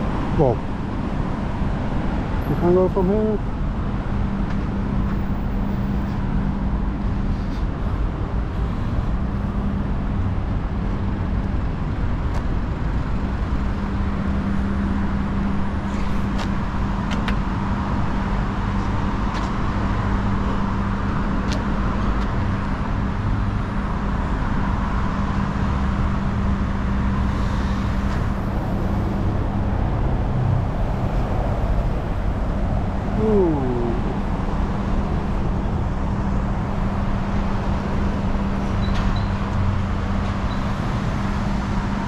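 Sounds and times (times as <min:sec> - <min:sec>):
city road traffic hum: 0:00.0 - 0:42.0.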